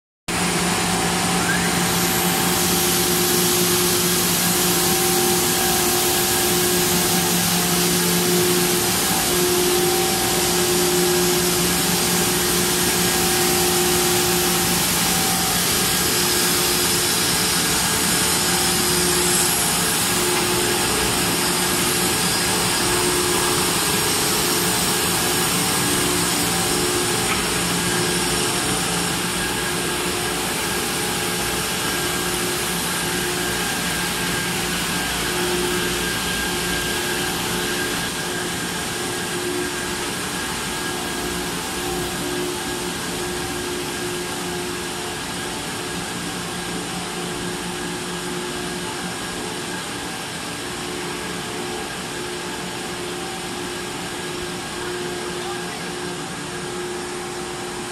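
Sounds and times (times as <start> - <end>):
hum of motors and pumps: 0.3 - 57.9.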